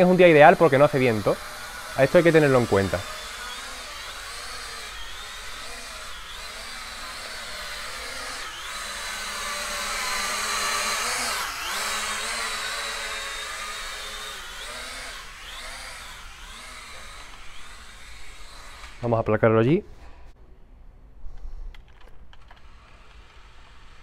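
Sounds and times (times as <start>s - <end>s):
toy drone propellers whining: 0.0s - 19.2s, 22.4s - 24.0s.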